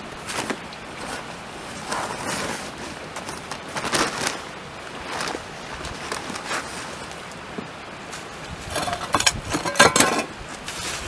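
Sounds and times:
shovel scraping sand and cement: 8.6 - 11.0.

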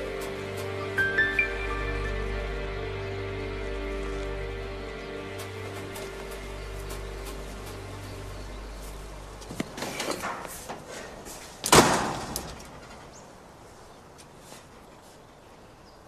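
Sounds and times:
low drone: 0.0 - 10.1
knocks and clatters: 9.4 - 13.2
loud slam: 11.7 - 12.6.

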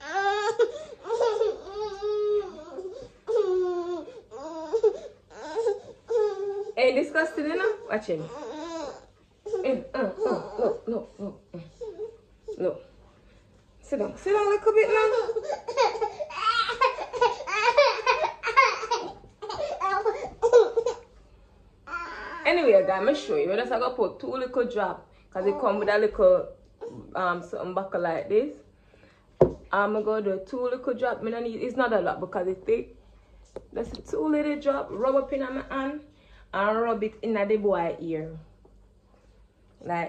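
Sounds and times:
baby crying: 0.0 - 6.8, 7.6 - 10.9, 14.8 - 21.0, 21.9 - 22.5
baby boy laughing: 15.0 - 21.0.

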